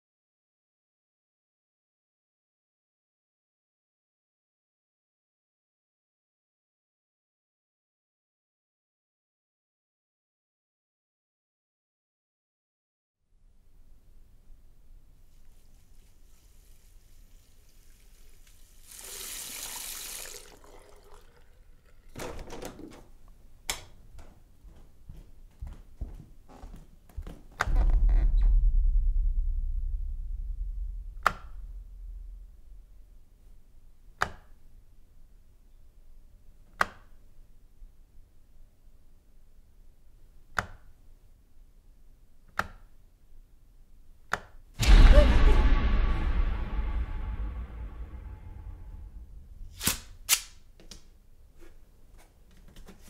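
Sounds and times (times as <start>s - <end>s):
room hiss: 13.6s - 21.2s
water running from a tap: 16.7s - 22.2s.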